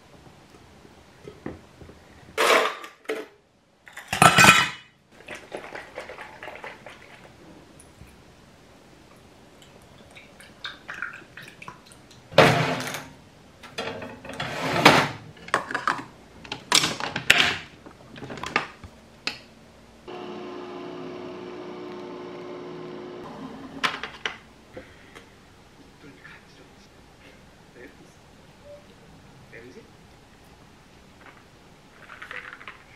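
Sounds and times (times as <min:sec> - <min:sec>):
coffee machine humming: 0:20.1 - 0:24.0.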